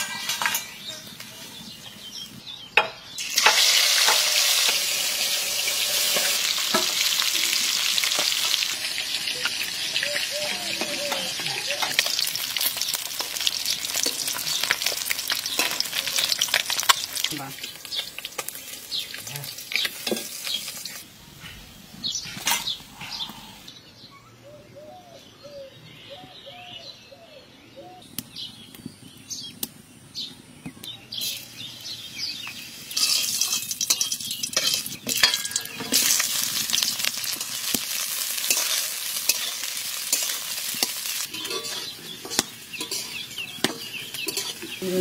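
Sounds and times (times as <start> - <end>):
metal spoon scraping a wok: 0.0 - 1.1, 3.4 - 7.1, 32.9 - 37.4, 38.2 - 44.8
spices sizzling in hot oil: 0.0 - 21.1, 30.8 - 45.0.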